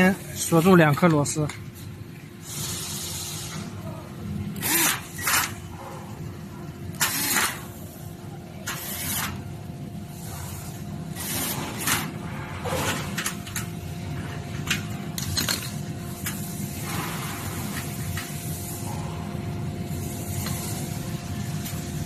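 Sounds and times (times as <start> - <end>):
steady machine hum: 0.0 - 22.0.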